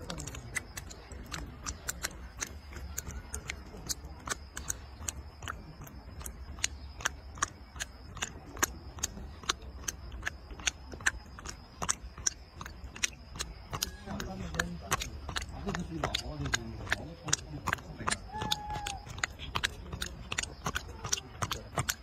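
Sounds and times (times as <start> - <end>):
plastic bottle crunching under teeth: 6.2 - 22.0.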